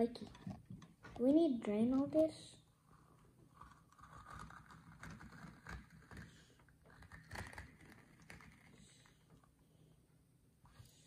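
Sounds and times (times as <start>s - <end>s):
plastic cup crinkling: 3.5s - 9.1s.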